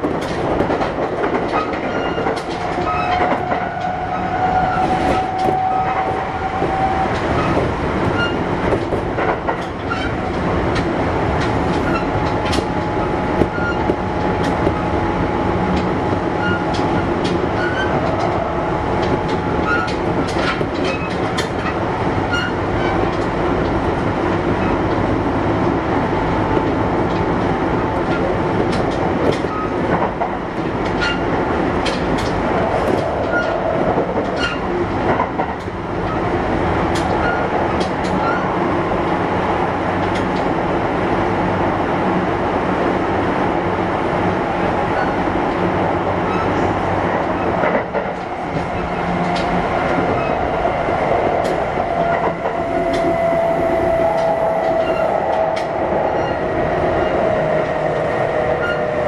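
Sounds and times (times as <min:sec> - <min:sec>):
wheels clicking over rails: 0:00.0 - 0:39.2, 0:44.9 - 0:59.0
train rolling noise: 0:00.0 - 0:59.0
train motor whine: 0:03.0 - 0:08.4, 0:51.1 - 0:59.0.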